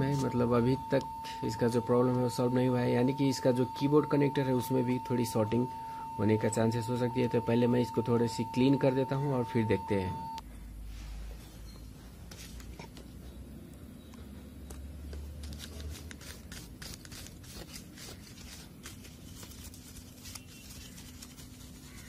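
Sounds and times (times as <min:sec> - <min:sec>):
brush scrubbing circuit board: 0:15.8 - 0:22.0.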